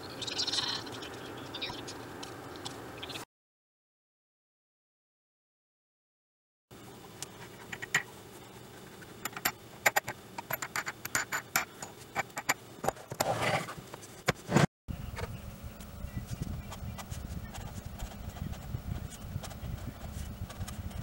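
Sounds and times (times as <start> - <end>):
board scraping: 13.0 - 14.7.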